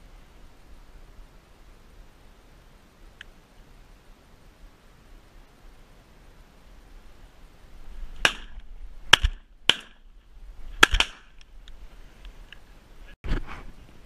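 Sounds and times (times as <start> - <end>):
shotgun shots: 8.2 - 10.0, 10.8 - 11.3.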